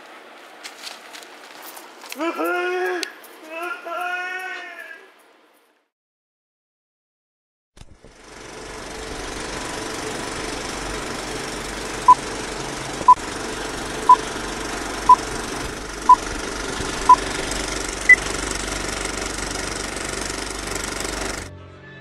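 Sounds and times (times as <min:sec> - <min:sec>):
film projector rattle: 0:08.0 - 0:21.5.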